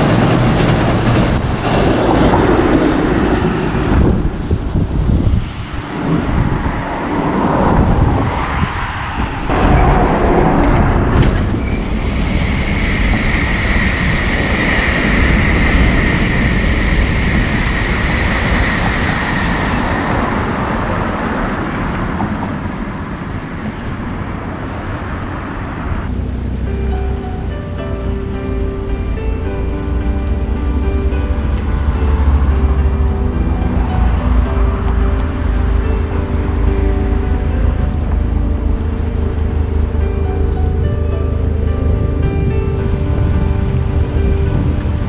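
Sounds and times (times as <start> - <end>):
high whine: 0.0 - 45.0
train rumbling over bridge: 0.0 - 45.0.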